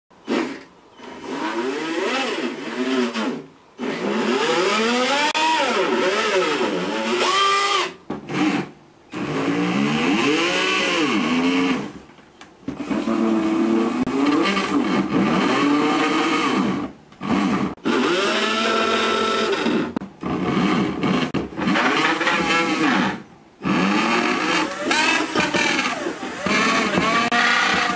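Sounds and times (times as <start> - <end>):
sliding pitched tones: 21.1 - 27.9.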